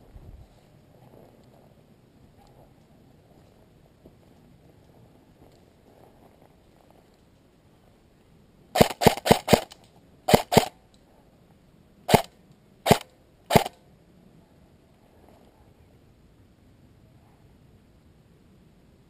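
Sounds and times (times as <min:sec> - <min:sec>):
airsoft rifle shots: 0:08.8 - 0:10.8, 0:12.1 - 0:13.8.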